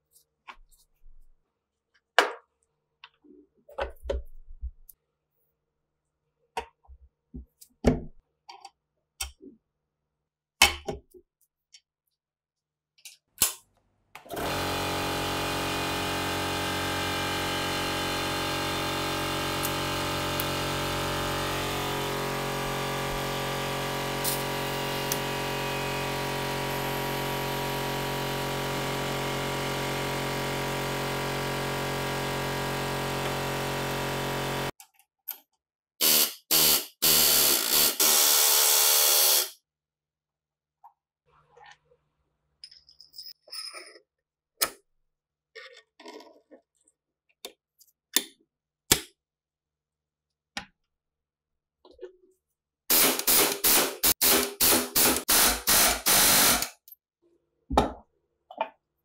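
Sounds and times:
electric power tool running: 14.3 - 34.7, 36.0 - 39.6, 52.9 - 56.7
harsh noise bursts: 52.9 - 56.7.

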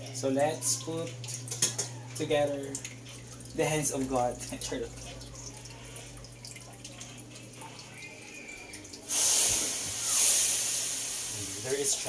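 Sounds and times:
noodles sizzling in a hot wok: 9.1 - 12.0.

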